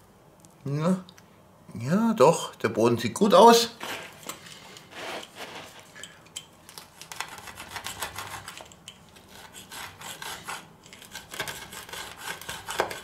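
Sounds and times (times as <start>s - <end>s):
pizza wheel crunching crust: 3.8s - 13.0s.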